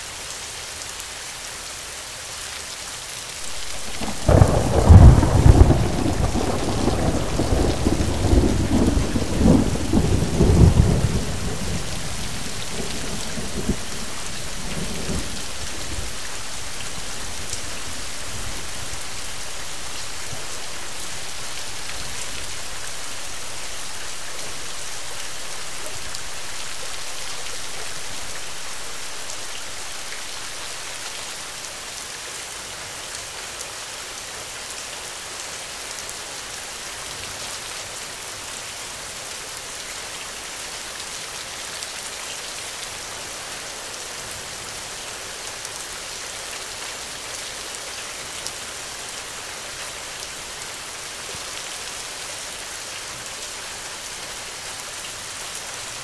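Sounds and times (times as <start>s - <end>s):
steady rain: 0.0s - 56.0s
thunder rumbling: 3.5s - 19.1s.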